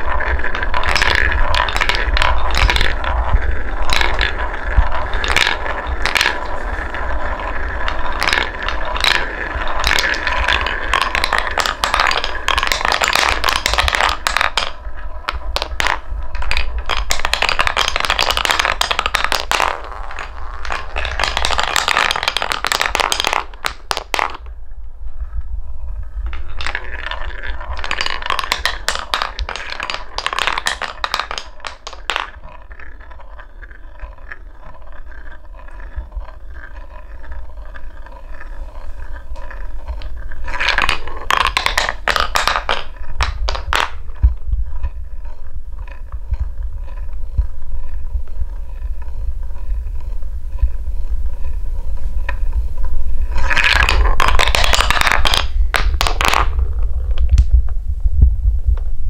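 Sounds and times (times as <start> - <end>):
wooden balls rolling and clattering: 0.0 - 59.0.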